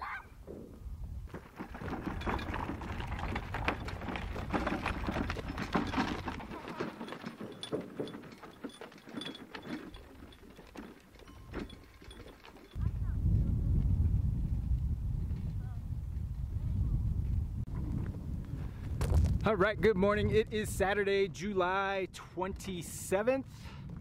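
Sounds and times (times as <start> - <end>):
buckets clattering and rattling: 1.3 - 12.8.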